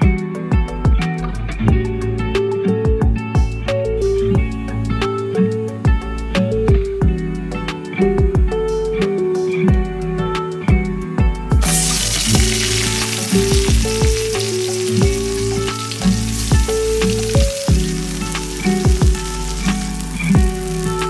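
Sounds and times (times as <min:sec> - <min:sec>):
background music: 0:00.0 - 0:21.0
fish sizzling in hot oil: 0:11.6 - 0:21.0.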